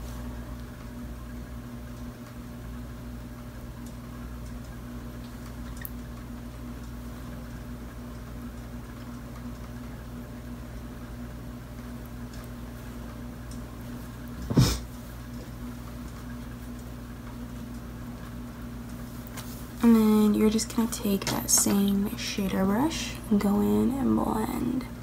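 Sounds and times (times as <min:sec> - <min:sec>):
steady low hum: 0:00.0 - 0:25.0
faint constant tone: 0:15.3 - 0:25.0.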